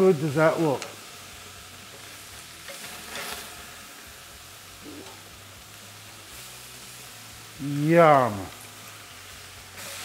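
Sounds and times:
meat sizzling on a grill: 0.0s - 10.0s
metal tongs scraping: 2.0s - 3.6s.

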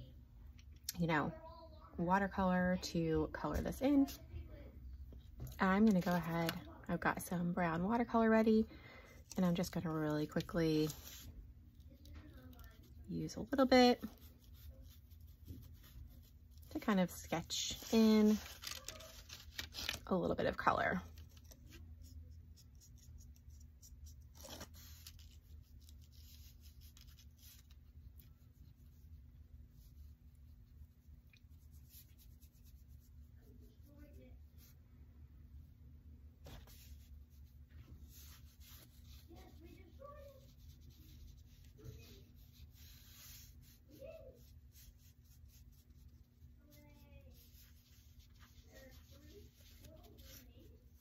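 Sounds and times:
low room hum: 0.0s - 51.0s
brush strokes on paper: 10.4s - 19.2s, 36.4s - 51.0s.

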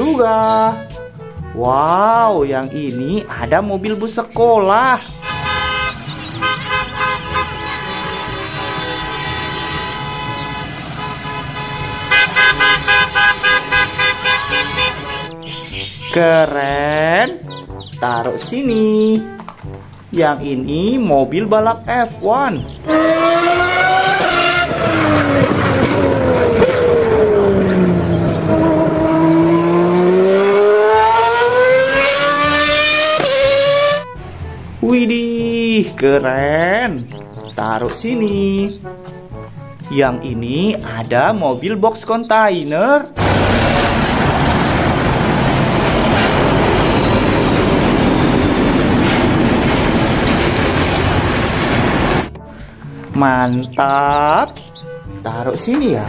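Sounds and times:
racing car engine: 22.8s - 34.2s, 43.2s - 52.3s
loud rumbling and rattling: 43.2s - 52.4s.

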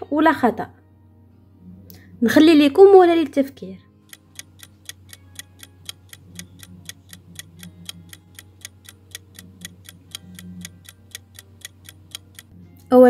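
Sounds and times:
ticking clock timer: 4.0s - 12.5s.

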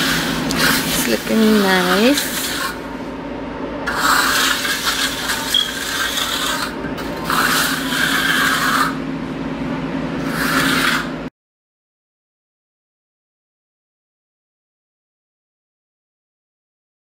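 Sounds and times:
trowel scraping wet concrete: 3.9s - 9.0s, 10.2s - 11.2s.

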